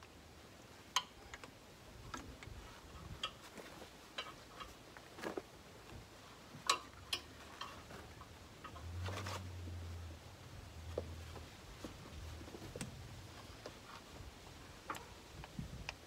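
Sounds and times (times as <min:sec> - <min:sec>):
hose fittings clicking and tapping: 0:00.9 - 0:05.4, 0:06.6 - 0:08.9.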